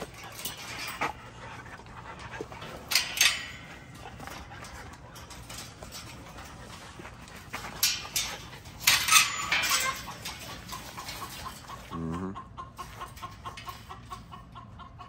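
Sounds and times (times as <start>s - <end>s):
loud metallic clatters: 0.0s - 11.9s
wire dog kennel rattling: 0.0s - 12.0s, 12.8s - 14.4s
chickens clucking: 0.0s - 15.0s.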